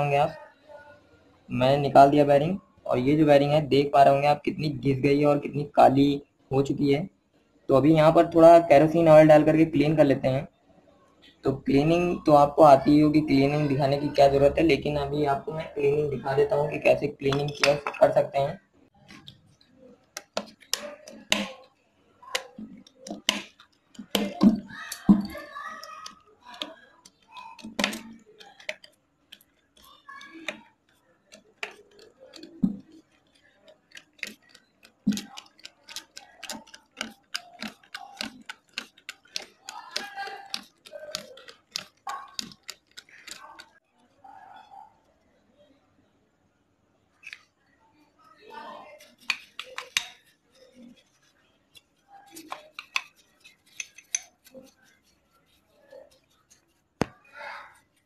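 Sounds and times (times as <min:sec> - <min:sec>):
brush scrubbing metal: 0:22.3 - 0:43.8, 0:48.9 - 0:57.0.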